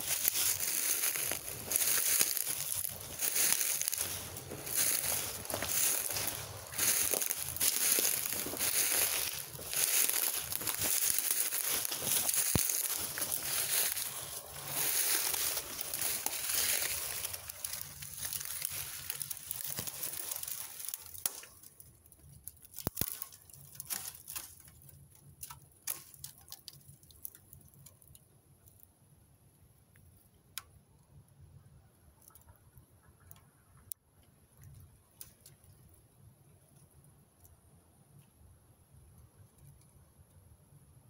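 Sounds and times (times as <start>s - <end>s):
dry vine stems rustling: 0.0s - 28.2s
twigs clicking and snapping: 0.0s - 28.9s, 34.6s - 36.0s.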